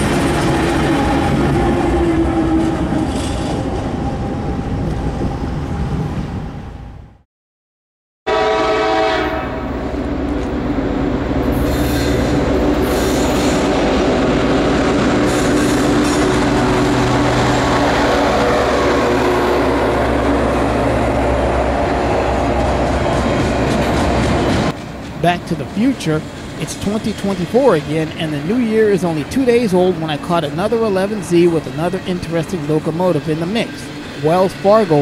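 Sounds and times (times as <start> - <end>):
train wheels rumbling and clattering: 0.0 - 6.2, 9.9 - 35.0
diesel locomotive engine drone: 0.0 - 7.2, 8.3 - 35.0
train horn blast: 8.3 - 10.0, 17.1 - 23.1.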